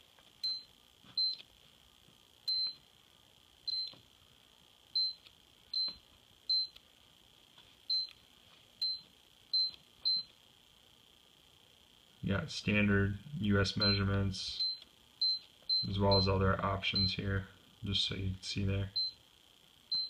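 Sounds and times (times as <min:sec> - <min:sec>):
faint high whine: 0:00.0 - 0:20.0
keypad beeping: 0:00.4 - 0:01.4, 0:02.5 - 0:02.8, 0:05.8 - 0:06.8, 0:08.8 - 0:10.3.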